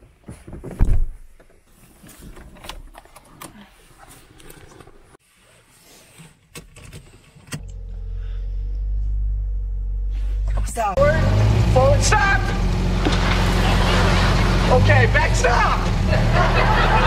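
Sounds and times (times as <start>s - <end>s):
car engine starting and running: 6.5s - 17.0s.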